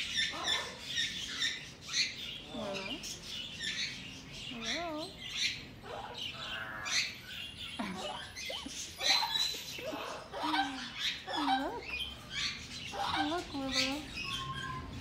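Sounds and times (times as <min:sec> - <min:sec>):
parrots chirping and squawking: 0:00.0 - 0:15.0.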